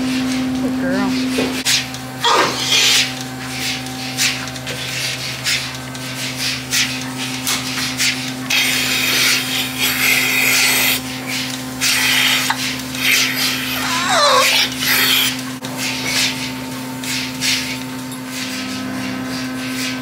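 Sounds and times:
vacuum pump hum: 0.0 - 20.0
air hissing into teat cups: 11.8 - 15.3.

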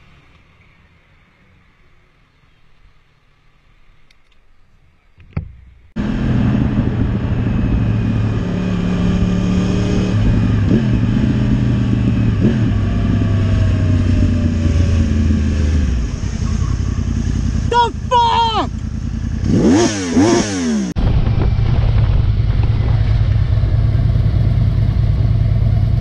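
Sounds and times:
motorcycle engine running: 6.0 - 26.0.

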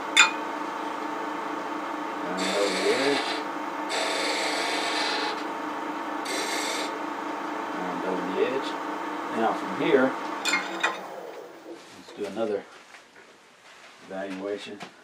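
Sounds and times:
wood lathe humming: 0.0 - 11.8
turning tool scraping wood: 2.2 - 5.5, 6.2 - 7.0.

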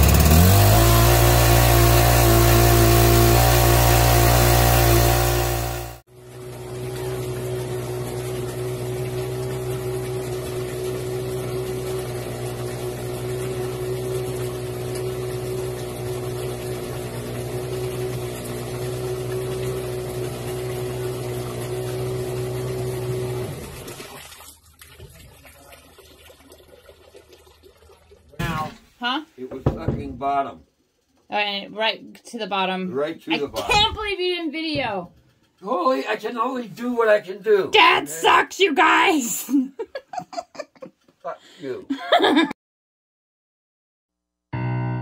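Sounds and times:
water pump engine running: 0.0 - 28.7, 33.4 - 39.4.

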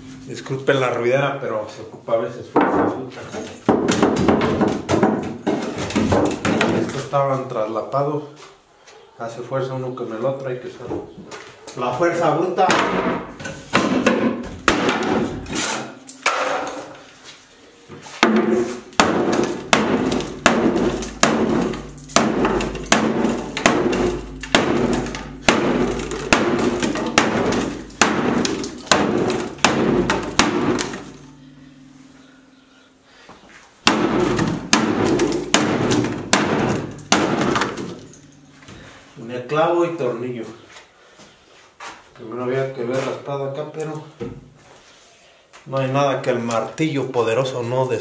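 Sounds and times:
hammer banging on wooden boards: 2.6 - 7.0, 12.6 - 16.9, 18.1 - 31.3, 33.8 - 38.9.

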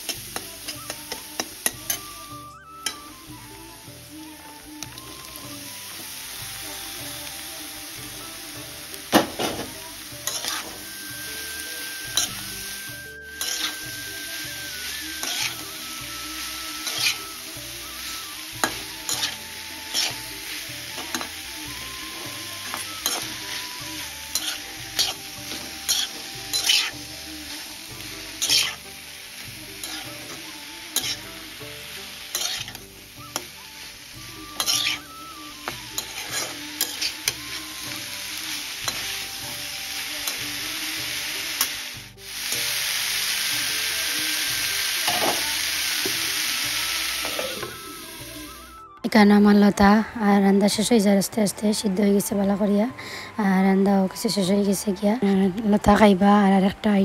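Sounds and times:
food sizzling in oil: 0.0 - 57.0
metal spatula scraping wok: 8.8 - 44.0.

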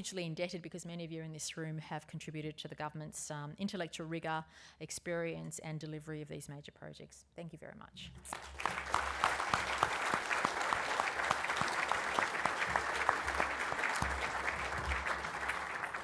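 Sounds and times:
audience applauding: 8.3 - 16.0.

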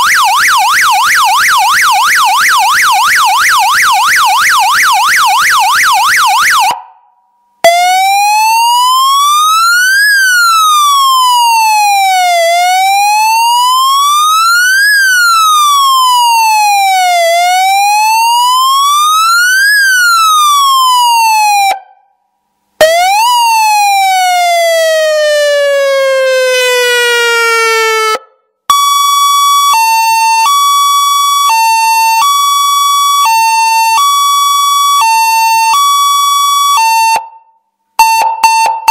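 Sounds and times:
electronic siren wailing: 22.8 - 37.4, 38.0 - 38.9.

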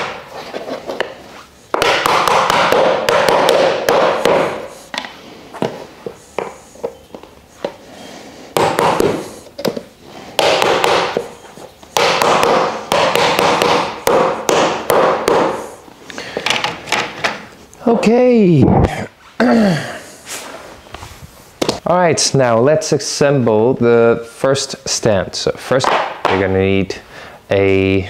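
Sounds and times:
hammer knocking wood: 1.7 - 4.6, 8.6 - 9.2, 10.4 - 11.3, 12.0 - 15.6.

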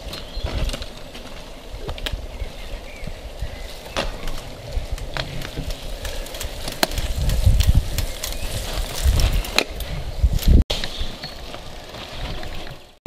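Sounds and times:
mountain bike rolling over roots: 0.0 - 13.0
wind buffeting microphone: 1.6 - 11.2.

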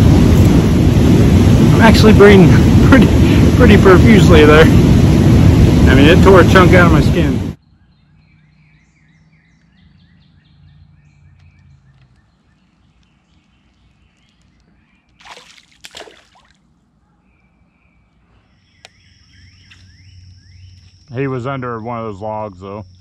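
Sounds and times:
faint chirping: 7.6 - 15.6, 16.8 - 23.0
fish splashing at water surface: 15.1 - 16.6.

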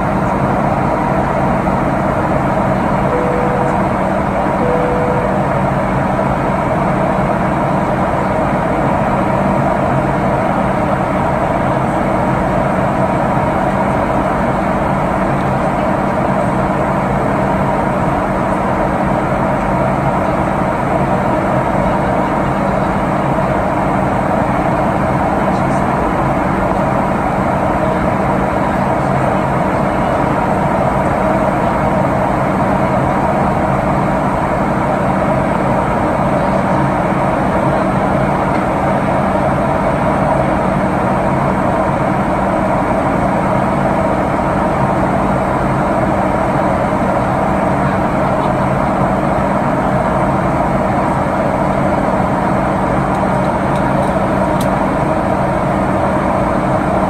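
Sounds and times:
low held hums: 0.0 - 12.2
jet engines droning: 0.0 - 57.0.

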